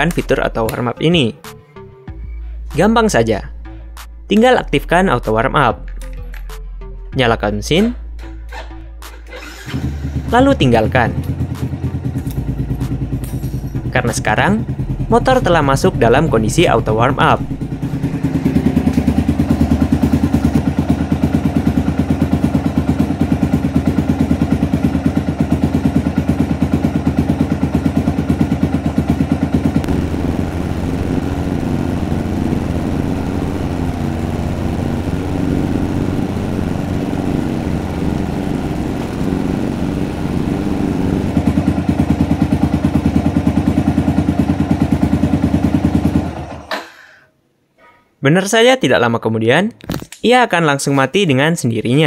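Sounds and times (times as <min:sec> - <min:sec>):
motorcycle engine idling: 0:09.8 - 0:46.7.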